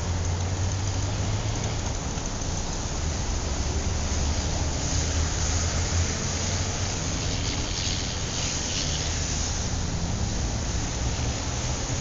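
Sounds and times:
traffic rumble and road noise: 0:00.0 - 0:12.0
hiss: 0:04.1 - 0:12.0.

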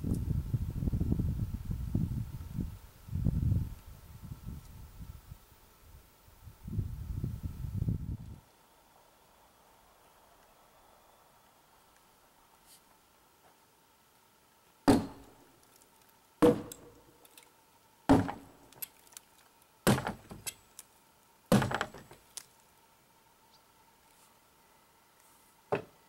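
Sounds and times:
tool striking wood: 0:14.9 - 0:15.3, 0:16.4 - 0:17.0, 0:18.1 - 0:18.6, 0:19.9 - 0:20.5, 0:21.5 - 0:22.2.

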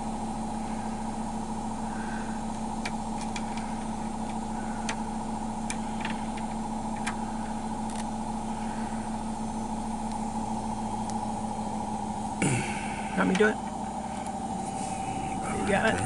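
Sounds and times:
steady mechanical hum: 0:00.0 - 0:16.0
small plastic clicks and taps: 0:02.8 - 0:03.6.

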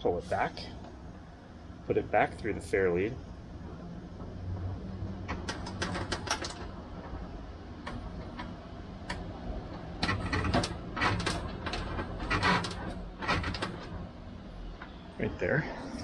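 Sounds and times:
steel cable scraping over wood: 0:09.8 - 0:14.1.

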